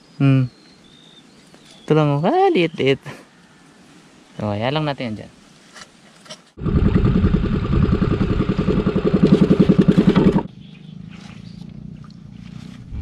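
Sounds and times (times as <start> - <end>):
boat engine pulsing: 6.6 - 10.5.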